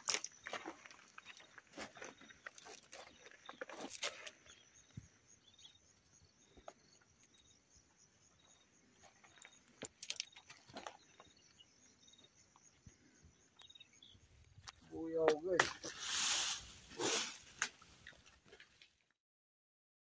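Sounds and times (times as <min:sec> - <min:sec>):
steady high hiss: 0:15.6 - 0:17.8.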